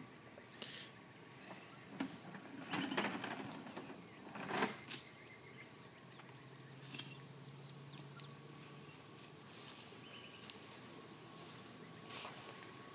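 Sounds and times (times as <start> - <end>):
faint birds chirping: 0.0 - 12.9
metal chain rattling and clinking: 1.9 - 11.1.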